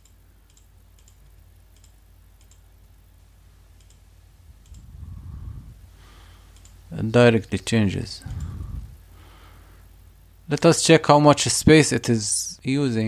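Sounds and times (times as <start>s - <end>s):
computer mouse clicks: 0.0s - 2.7s, 3.8s - 4.0s, 4.6s - 4.9s, 6.5s - 6.8s, 8.3s - 8.6s
steady low hum: 0.0s - 13.0s.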